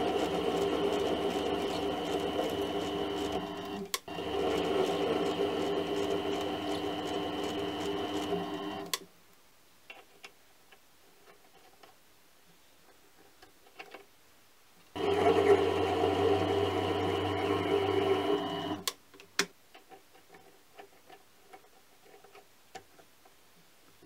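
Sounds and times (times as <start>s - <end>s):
lathe running: 0.0s - 9.0s, 15.0s - 18.9s.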